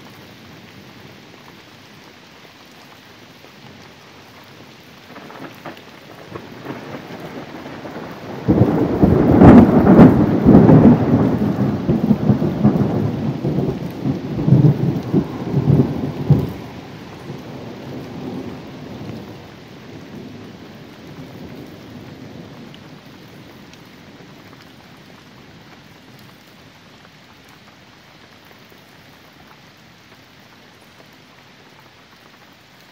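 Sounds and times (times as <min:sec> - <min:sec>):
steady rain: 0:00.0 - 0:32.9
thunderclap booming: 0:05.2 - 0:16.9.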